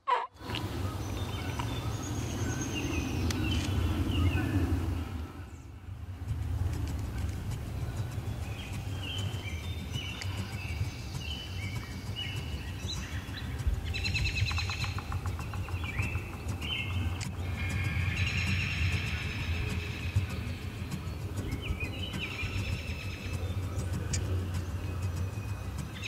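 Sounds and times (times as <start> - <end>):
birds chirping: 0.0 - 26.0
low rumble: 0.4 - 26.0
bird rattling call: 6.2 - 26.0.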